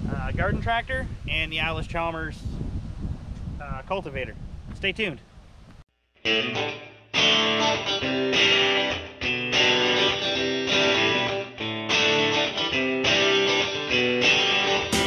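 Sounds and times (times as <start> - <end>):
strummed guitar chords: 6.2 - 15.0.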